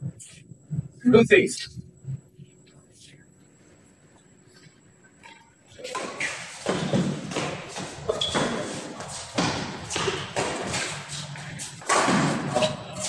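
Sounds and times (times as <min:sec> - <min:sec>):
rackets striking shuttlecock: 0:05.9 - 0:12.8.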